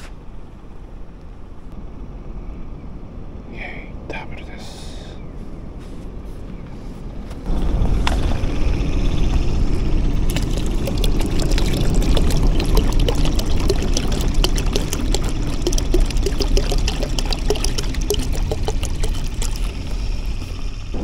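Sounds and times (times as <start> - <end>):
water pouring from bottle: 10.1 - 20.7.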